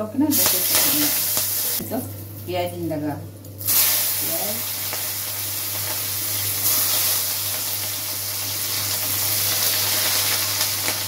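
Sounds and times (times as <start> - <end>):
low steady hum: 0.0 - 6.8
food sizzling in hot oil: 0.2 - 2.8, 3.4 - 11.0.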